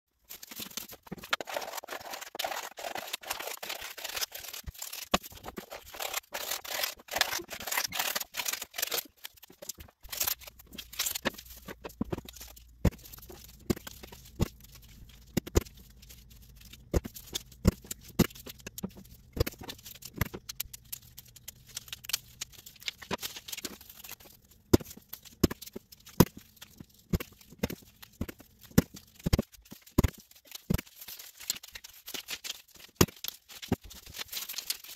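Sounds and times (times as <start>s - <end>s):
paper rustling: 0.2s - 24.4s, 25.6s - 34.9s
scissors cutting paper: 0.4s - 14.6s.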